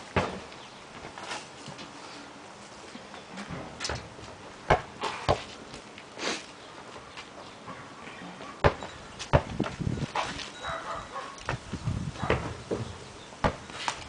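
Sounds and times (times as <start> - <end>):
basketball thudding on hoop and pavement: 0.1 - 0.5, 3.5 - 5.6, 8.6 - 10.4, 11.5 - 13.8.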